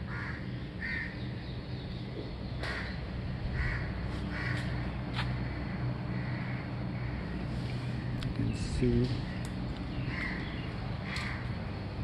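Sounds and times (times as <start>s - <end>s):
crows cawing: 0.0s - 1.2s, 2.6s - 8.3s, 9.3s - 11.6s
low background rumble: 0.0s - 12.0s.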